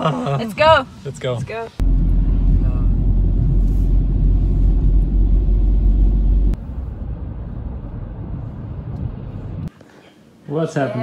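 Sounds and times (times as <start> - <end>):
car cabin rumble: 1.8 - 9.7.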